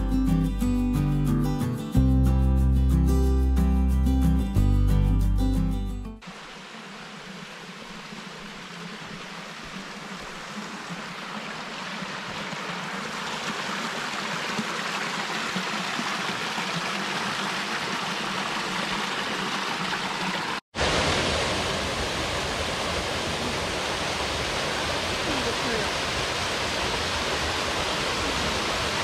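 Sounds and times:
stream rushing over rocks: 6.2s - 29.0s
waterfall pouring into pool: 6.2s - 29.0s.

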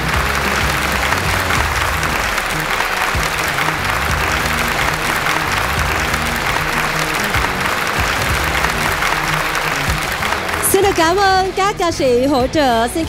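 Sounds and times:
audience applauding: 0.0s - 11.8s
music: 0.0s - 13.0s.

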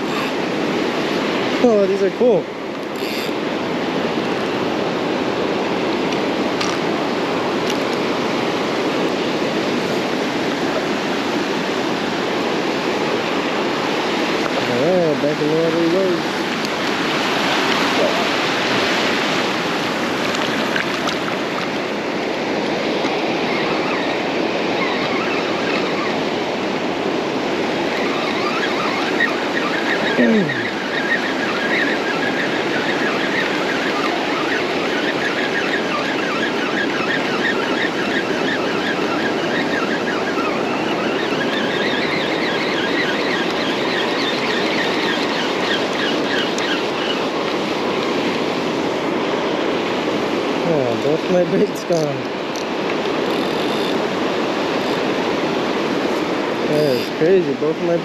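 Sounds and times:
surf washing on beach: 0.0s - 58.0s
fishing reel ticking: 2.8s - 3.4s.

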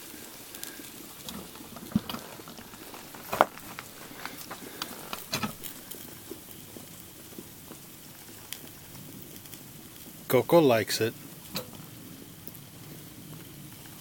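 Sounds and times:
food crackling and sizzling: 0.0s - 14.0s.

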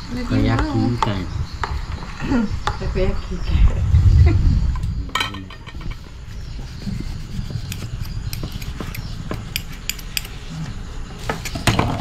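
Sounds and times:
low steady rumble: 2.3s - 11.1s
utensils and dishes clinking: 5.1s - 6.0s.

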